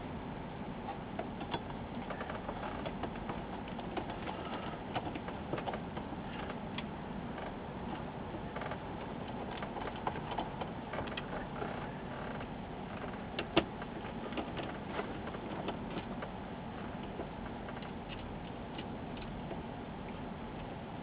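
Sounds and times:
steady room noise: 0:00.0 - 0:21.0.

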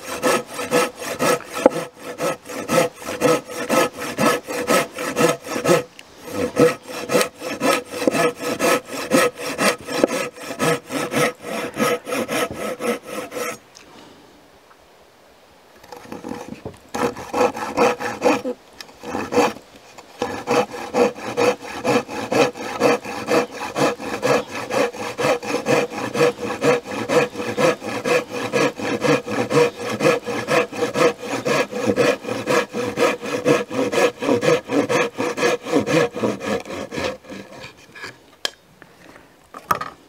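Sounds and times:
handsaw cutting wood: 0:00.0 - 0:13.6, 0:15.9 - 0:19.6, 0:20.2 - 0:38.1.

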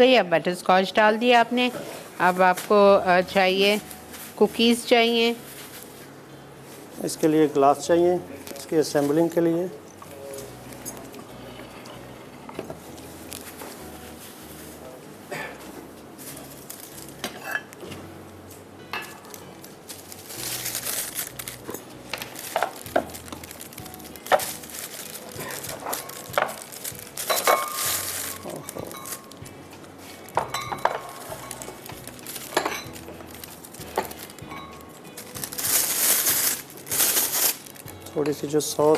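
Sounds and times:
rustling: 0:19.2 - 0:37.9
glass cups clinking: 0:27.2 - 0:29.4, 0:30.3 - 0:31.9, 0:32.5 - 0:33.0.

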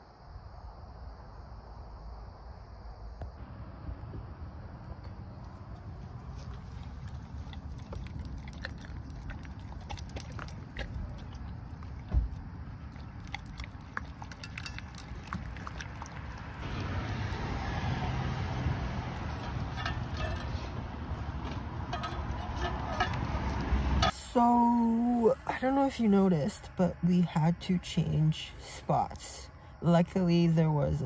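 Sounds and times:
dog chewing and licking: 0:05.7 - 0:18.4.

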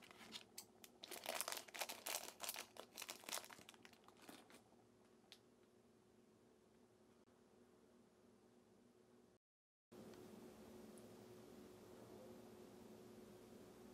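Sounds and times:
plastic bag crinkling: 0:00.0 - 0:04.7.

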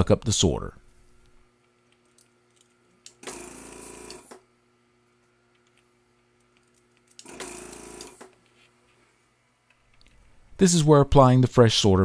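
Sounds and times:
desoldering pump running: 0:01.9 - 0:04.4, 0:06.2 - 0:08.4.

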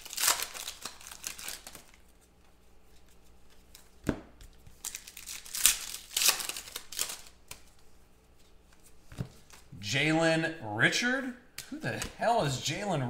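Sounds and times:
foil wrapper tearing and crinkling: 0:00.0 - 0:02.1, 0:04.8 - 0:07.7.

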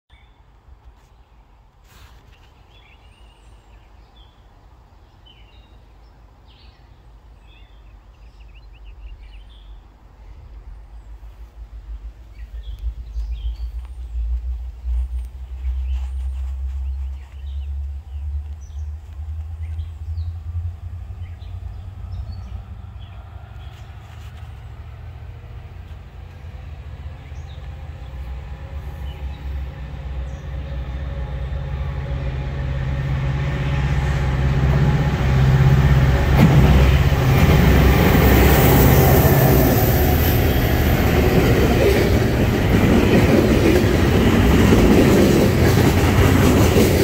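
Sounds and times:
distant freight train rumble: 0:03.6 - 0:47.0
steady low rumble: 0:09.0 - 0:24.0
small birds chirping: 0:12.2 - 0:20.4.

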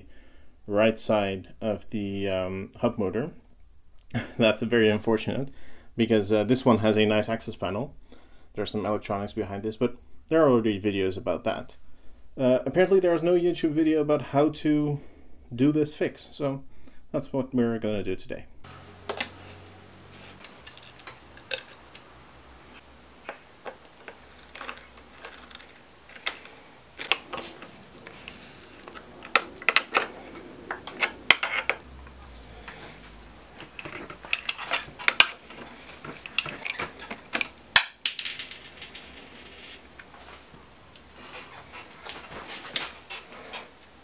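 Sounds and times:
metal tools clinking and scraping: 0:19.0 - 0:22.1, 0:23.6 - 0:33.0, 0:33.6 - 0:37.6, 0:41.1 - 0:43.7.

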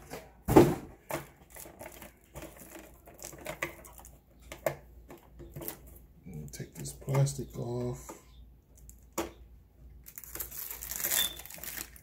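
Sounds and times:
cardboard packaging rustling: 0:00.0 - 0:04.2, 0:10.0 - 0:12.0
plastic wrapping clicks and rustles: 0:01.0 - 0:07.9, 0:08.7 - 0:09.4, 0:10.0 - 0:12.0.

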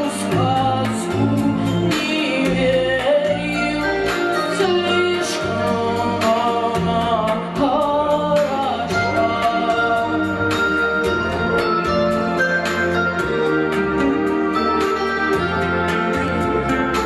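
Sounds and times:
woman singing pop song: 0:00.0 - 0:11.4
music with steady beat: 0:00.0 - 0:17.0.

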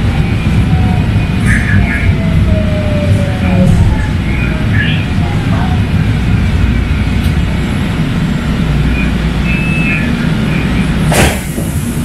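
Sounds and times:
light rail car rumble: 0:00.0 - 0:12.0.

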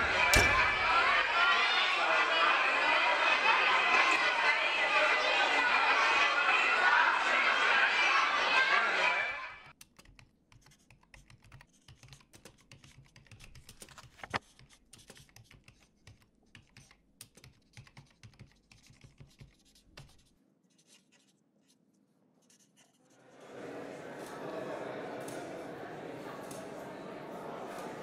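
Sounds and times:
typing on laptop keyboard: 0:09.7 - 0:20.2.

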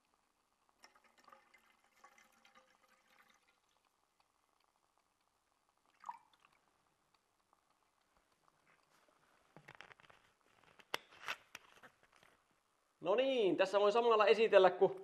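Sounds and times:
water pouring into metal pot: 0:00.7 - 0:04.0.

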